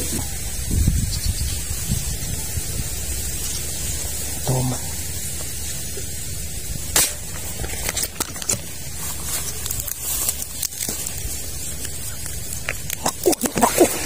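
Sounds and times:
grass and leaves rustling: 0:00.0 - 0:14.0
steady hiss: 0:00.0 - 0:14.0
sharp crack: 0:06.8 - 0:08.8.

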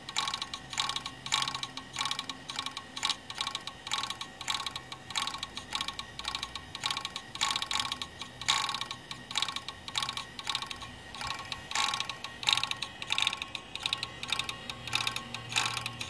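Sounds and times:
hard drive clattering clicks: 0:00.0 - 0:16.0.

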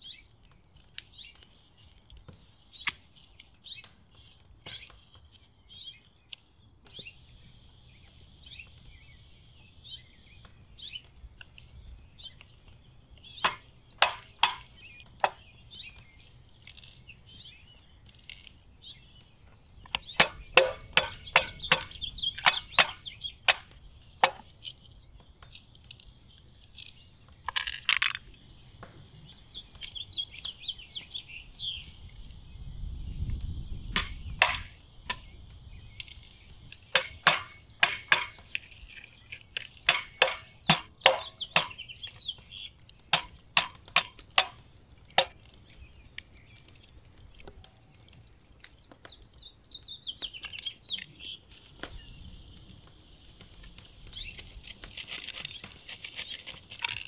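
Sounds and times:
birds chirping: 0:00.0 - 0:57.0
walnut shells cracking: 0:00.2 - 0:30.7, 0:33.2 - 0:57.0
stone knocking on wooden board: 0:13.4 - 0:14.6, 0:20.2 - 0:24.4, 0:34.0 - 0:35.2, 0:37.0 - 0:38.5, 0:39.9 - 0:41.8, 0:43.1 - 0:44.6.

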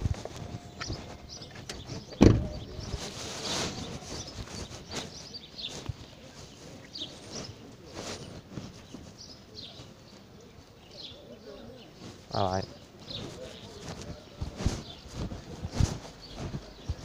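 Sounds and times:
light footsteps: 0:00.0 - 0:17.0
bird chirps: 0:00.2 - 0:17.0
loud thump: 0:02.2 - 0:02.7.

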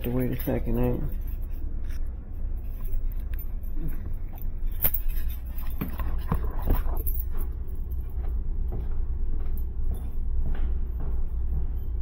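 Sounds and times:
footsteps: 0:04.9 - 0:12.0.

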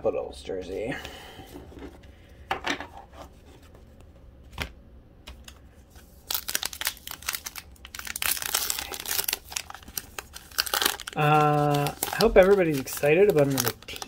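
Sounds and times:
foil wrapper crinkling and tearing: 0:06.0 - 0:14.0.

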